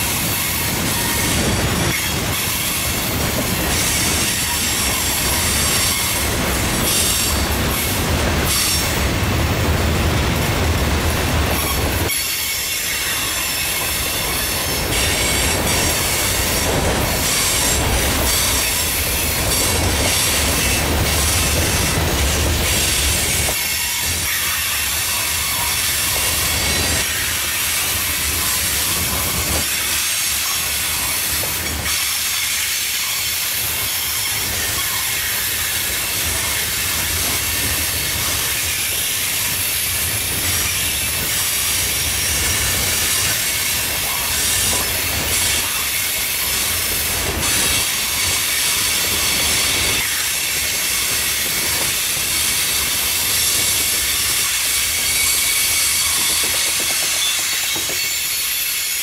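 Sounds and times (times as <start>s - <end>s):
train wheels rumbling on rails: 0.0s - 59.0s
wheel squeal: 53.3s - 59.0s.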